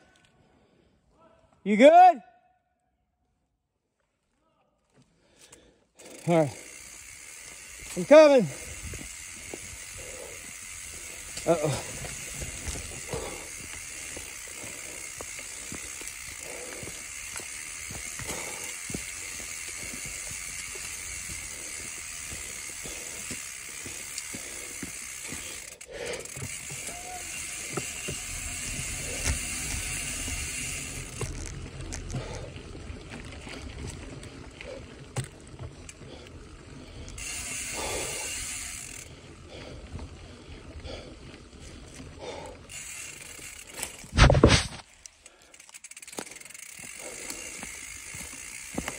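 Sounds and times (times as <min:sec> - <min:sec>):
freehub ratcheting: 0:06.0 - 0:32.6, 0:37.0 - 0:39.1, 0:42.7 - 0:44.3, 0:45.0 - 0:48.9
bike tyres rumbling on dirt: 0:06.0 - 0:45.0, 0:45.7 - 0:48.9
bike knocking and rattling: 0:06.0 - 0:48.9.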